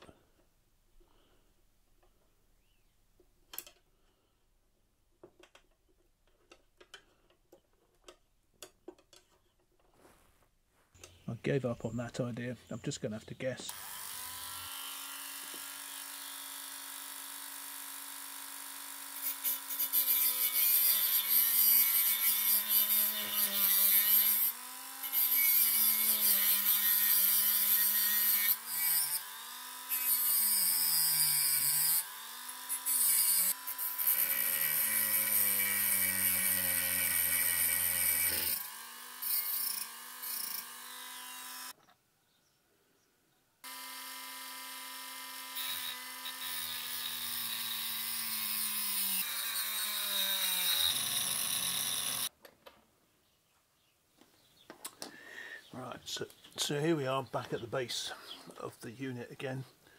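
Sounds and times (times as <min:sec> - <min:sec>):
rotary tool grinding metal: 0:13.7 - 0:41.8, 0:43.6 - 0:52.3.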